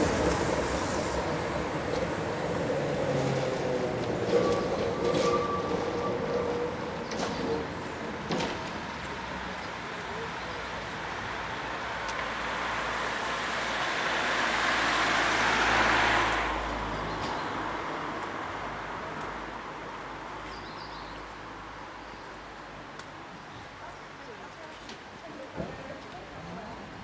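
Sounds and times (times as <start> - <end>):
road vehicle passing: 0.0 - 20.4.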